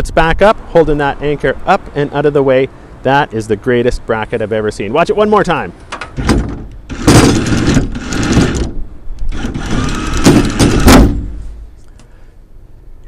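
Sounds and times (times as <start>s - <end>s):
anchor knocking into bracket: 5.9s - 8.8s, 9.7s - 11.4s
electric anchor windlass running: 6.0s - 11.4s.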